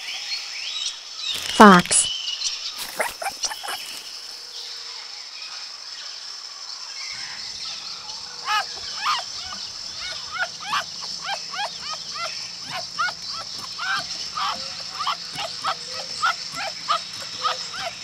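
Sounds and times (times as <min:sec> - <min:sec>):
fox kits calling: 0:02.8 - 0:04.0, 0:07.1 - 0:18.0.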